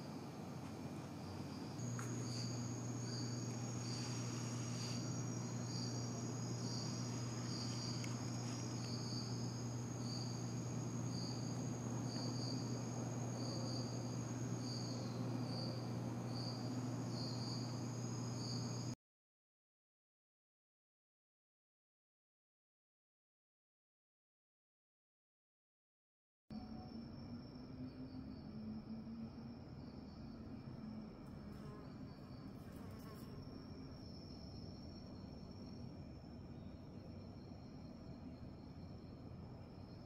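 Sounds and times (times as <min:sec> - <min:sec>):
continuous high insect trill: 0:00.0 - 0:19.0, 0:26.6 - 0:40.0
steady low hum: 0:00.0 - 0:19.0
insect high chirp: 0:01.2 - 0:19.0, 0:26.6 - 0:40.0.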